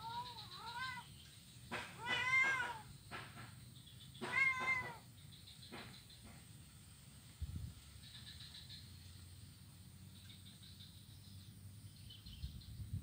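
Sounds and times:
kitten meowing: 0:00.0 - 0:01.1, 0:02.0 - 0:02.9, 0:04.2 - 0:05.0.

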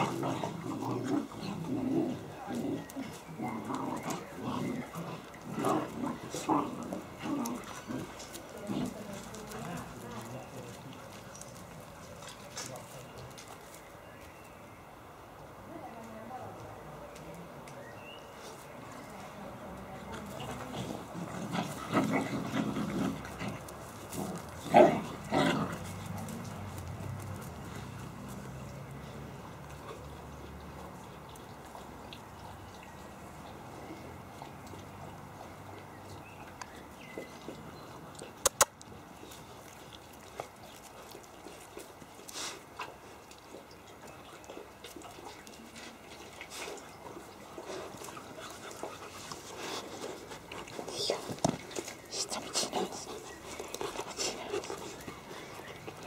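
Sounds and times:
puppies growling: 0:00.0 - 0:13.3, 0:20.1 - 0:32.7, 0:39.2 - 0:56.0.

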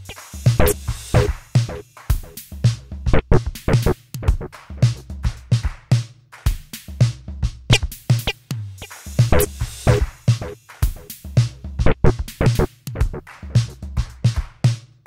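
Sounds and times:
drum machine beat: 0:00.0 - 0:15.0
deep bass notes: 0:03.1 - 0:04.4, 0:11.8 - 0:12.7.

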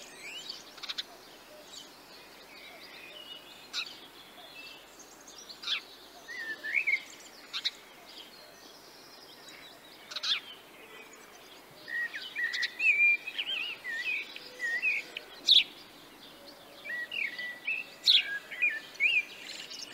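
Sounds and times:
bird chirps: 0:00.0 - 0:19.9
songbirds warbling: 0:00.0 - 0:19.9.

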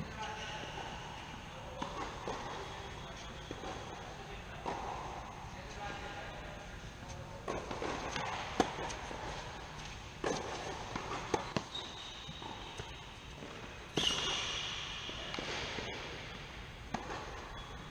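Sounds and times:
tennis ball hit by racquets: 0:01.6 - 0:05.4, 0:07.4 - 0:17.6
tennis ball bouncing on hard court: 0:01.7 - 0:05.3, 0:07.4 - 0:17.7.

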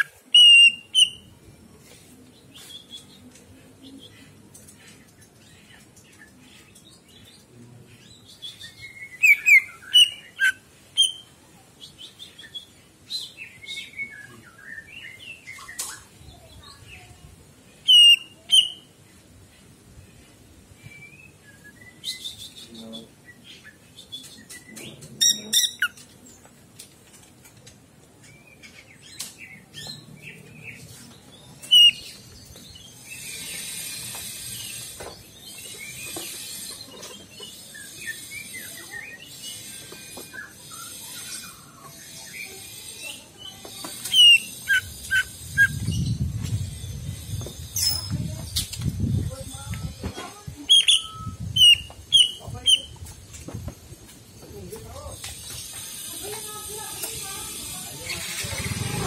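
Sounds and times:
bird whistles and chirps: 0:00.4 - 0:01.3, 0:17.9 - 0:18.8, 0:20.8 - 0:23.1, 0:50.7 - 0:52.9
high fast bird twittering: 0:40.4 - 0:49.7, 0:50.6 - 0:53.0.

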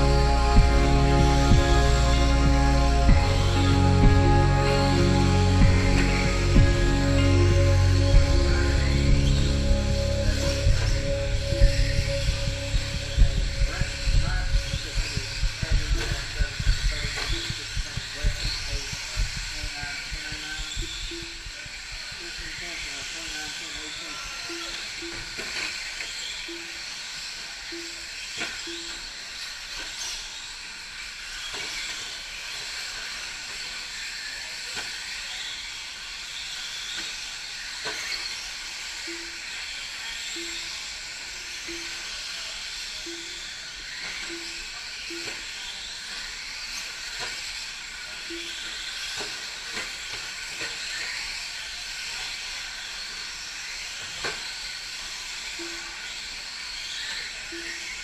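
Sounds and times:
short low beeps: 0:00.0 - 0:21.6, 0:44.2 - 0:45.4
rc truck motors whining: 0:00.0 - 0:58.0.

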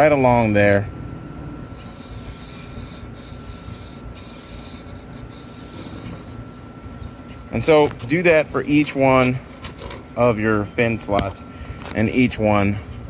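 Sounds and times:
marker rubbing on fiberglass: 0:01.7 - 0:09.9.

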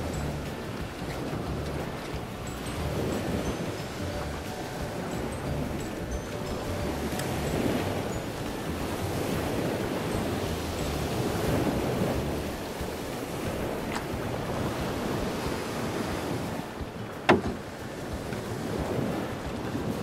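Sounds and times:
sea waves washing: 0:00.0 - 0:20.0
wind: 0:00.0 - 0:20.0
sharp knock: 0:17.3 - 0:17.6.

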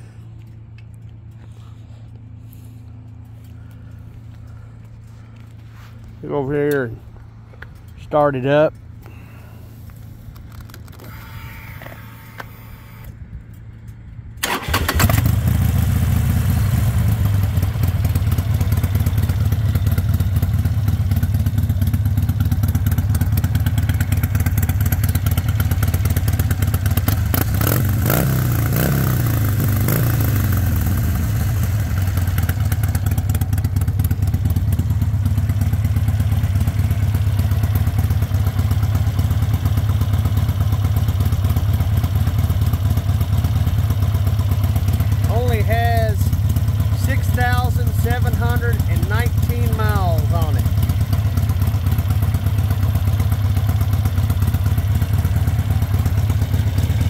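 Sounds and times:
motorcycle engine starting and idling: 0:00.0 - 0:57.0
motorcycle engine revving: 0:14.4 - 0:57.0.

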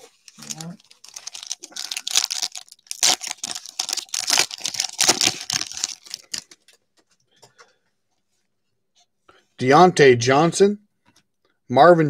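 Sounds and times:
wrapper tearing and crinkling: 0:00.0 - 0:06.8
cards rustling: 0:00.0 - 0:07.2.

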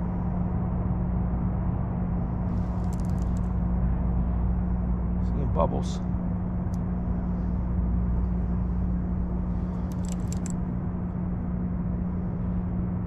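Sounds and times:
fishing reel ticking: 0:02.8 - 0:03.4, 0:09.8 - 0:10.5.

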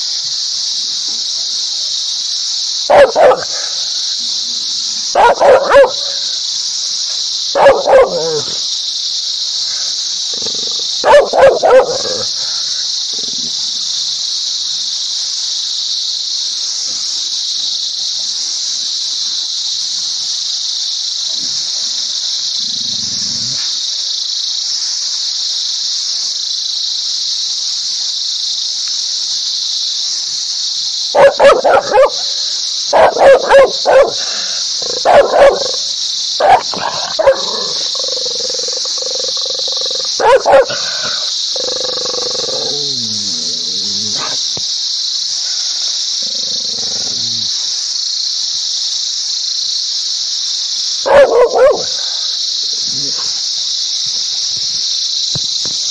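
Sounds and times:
high-pitched hiss: 0:00.0 - 0:55.9
dog barking angrily: 0:02.9 - 0:03.9, 0:05.1 - 0:06.3, 0:07.5 - 0:08.6, 0:10.4 - 0:12.6, 0:31.2 - 0:35.8, 0:36.4 - 0:44.4, 0:51.0 - 0:52.2.

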